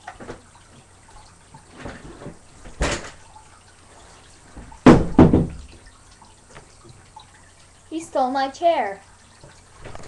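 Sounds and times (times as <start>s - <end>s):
thumps: 4.6s - 5.8s.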